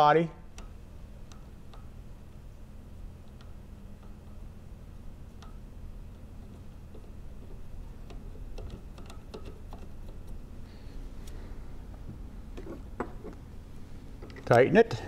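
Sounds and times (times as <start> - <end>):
low steady hum: 0.0 - 15.0
metallic clicks and taps: 0.5 - 1.9.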